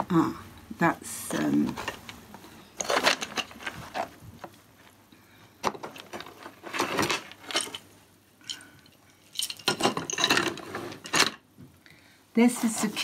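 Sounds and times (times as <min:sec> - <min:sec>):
wooden beads clicking and rattling: 0:05.7 - 0:11.4.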